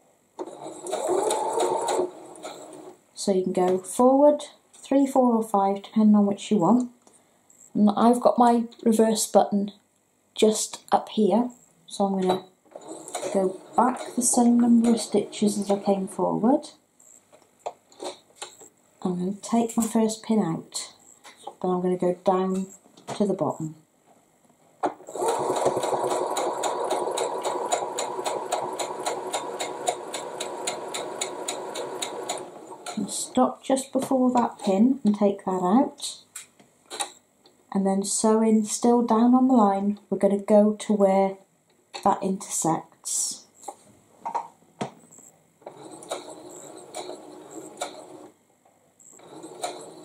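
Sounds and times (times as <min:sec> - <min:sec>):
sewing machine motor humming: 0:00.4 - 0:02.9, 0:12.7 - 0:16.0, 0:25.1 - 0:33.1, 0:45.7 - 0:48.3, 0:49.1 - 0:50.0
sewing needle ticking: 0:25.2 - 0:33.0.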